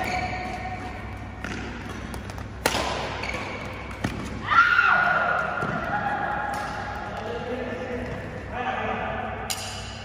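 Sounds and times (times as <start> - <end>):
racket striking shuttlecock: 0.0 - 4.4, 9.5 - 10.0.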